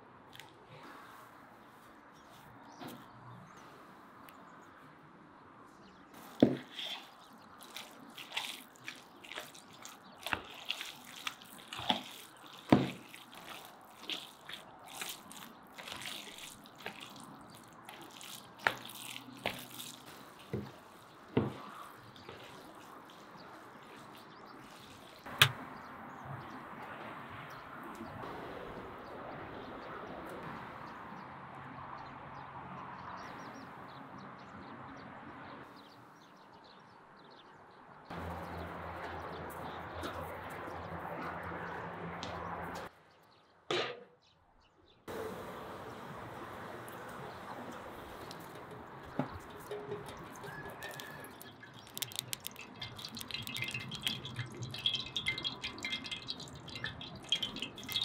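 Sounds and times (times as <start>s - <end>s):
wet squelches of mixing: 6.2s - 26.5s, 45.9s - 58.0s.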